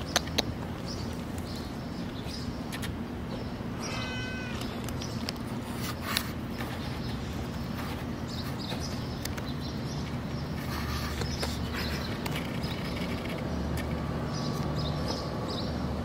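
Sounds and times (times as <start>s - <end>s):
cat meowing: 3.8s - 4.8s.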